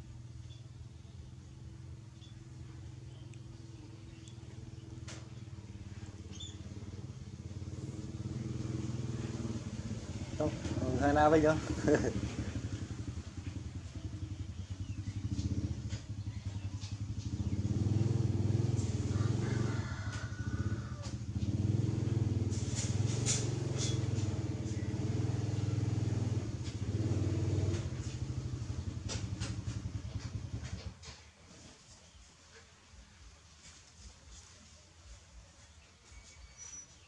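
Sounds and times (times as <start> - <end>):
engine idling: 0.0 - 31.2
faint clicks: 3.2 - 3.5.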